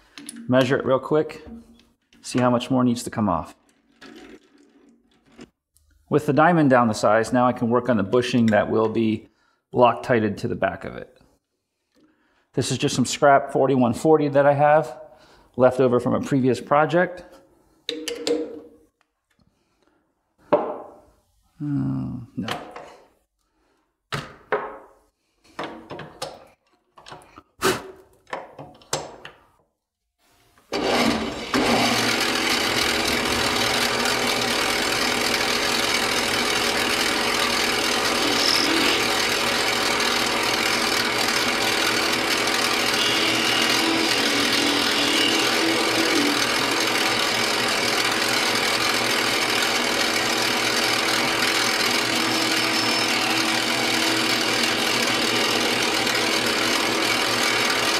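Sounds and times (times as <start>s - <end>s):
metal lathe cutting steel: 30.8s - 57.9s.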